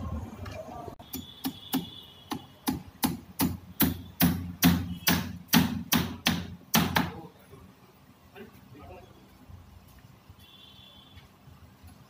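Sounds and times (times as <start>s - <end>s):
hammer striking wood: 1.1s - 7.2s.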